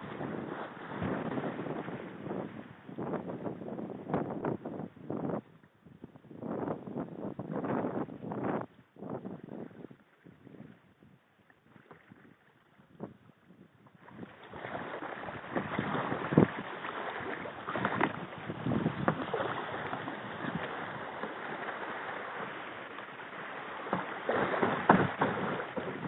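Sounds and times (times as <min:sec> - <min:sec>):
knocks against kayak hull: 0:17.7 - 0:21.4, 0:23.8 - 0:26.0.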